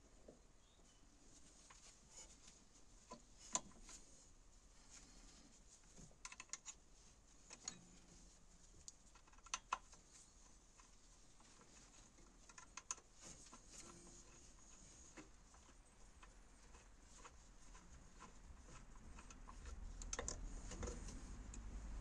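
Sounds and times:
light clicks of tool on metal: 7.5s - 7.9s.

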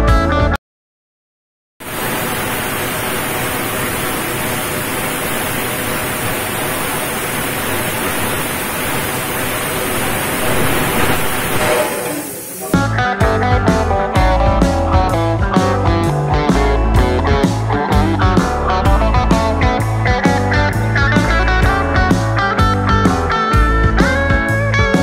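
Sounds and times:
plasma cutter hissing: 1.9s - 12.8s.

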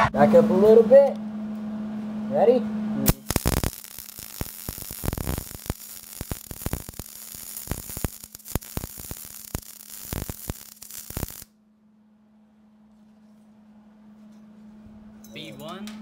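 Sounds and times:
welder arc crackling and hissing: 3.0s - 11.5s.

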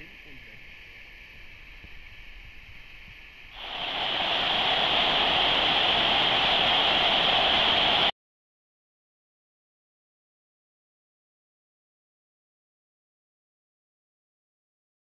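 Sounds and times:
waterfall rushing: 3.6s - 8.1s.

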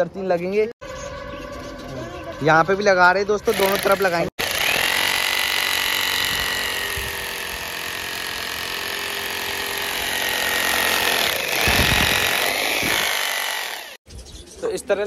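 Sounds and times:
power tool whining: 3.4s - 14.0s.

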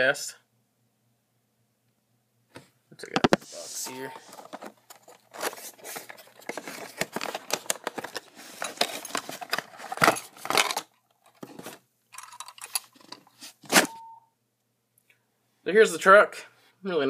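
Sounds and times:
cardboard box rustling: 3.3s - 11.8s
toy truck handling clicks and rattles: 6.5s - 13.4s.

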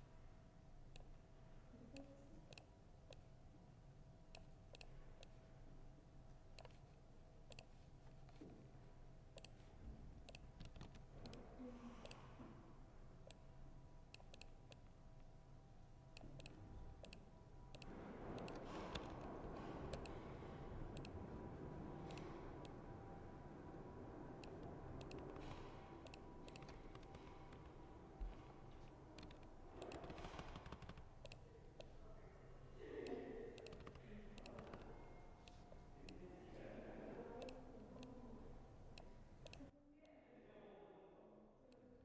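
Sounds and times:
faint background noise: 0.0s - 42.0s
laptop keyboard typing: 10.3s - 11.4s, 16.2s - 20.3s, 24.3s - 31.9s, 33.6s - 35.8s.

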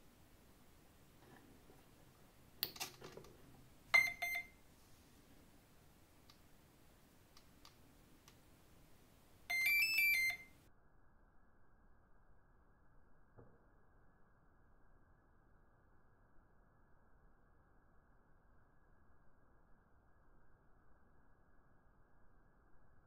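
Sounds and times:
electronic beep tones from motor: 3.9s - 4.6s, 9.5s - 10.5s.

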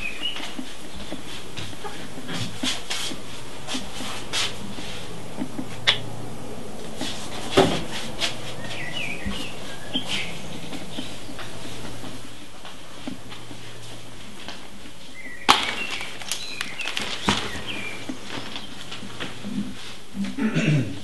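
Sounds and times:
bird-like chirps: 0.0s - 1.1s, 8.5s - 11.6s, 15.1s - 18.8s
low room hum: 0.0s - 21.0s.

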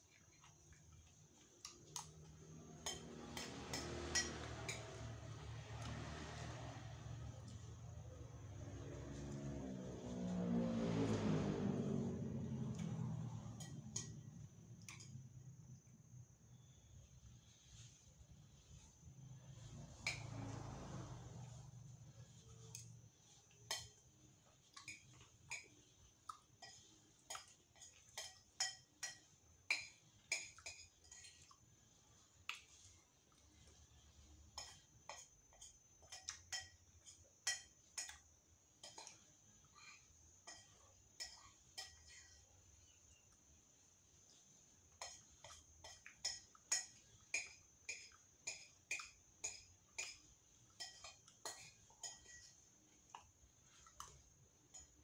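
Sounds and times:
spoon tapping and scraping on dish: 2.8s - 5.0s, 13.5s - 15.2s, 23.6s - 24.0s, 26.5s - 31.6s, 34.5s - 42.5s, 44.9s - 55.0s.

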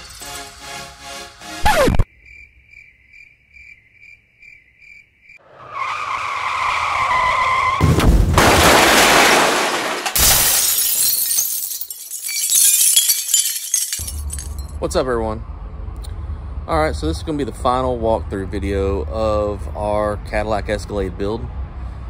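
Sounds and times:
heavy jolts: 8.2s - 11.9s.

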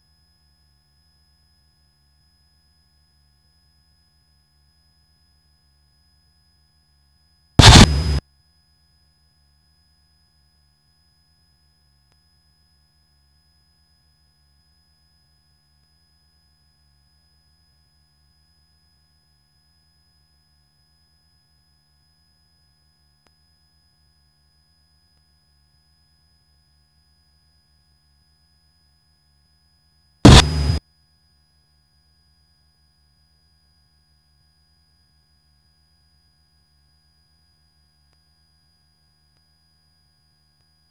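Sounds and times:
faint steady hum: 7.6s - 8.2s
loud burst of noise: 7.6s - 8.2s, 30.3s - 30.8s.

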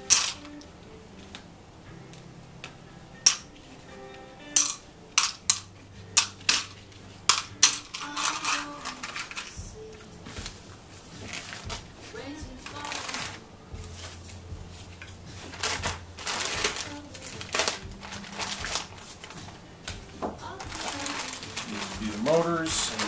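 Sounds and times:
plastic bags crinkling: 6.3s - 9.6s, 11.2s - 14.4s, 15.4s - 23.0s
small parts clicking into plastic tub: 7.3s - 9.5s.

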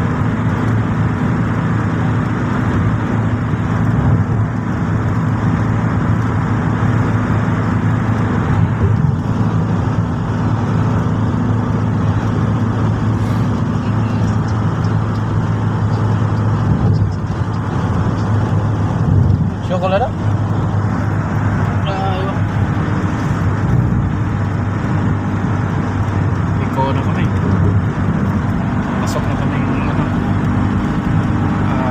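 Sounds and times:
car driving at highway speed: 0.0s - 31.9s.

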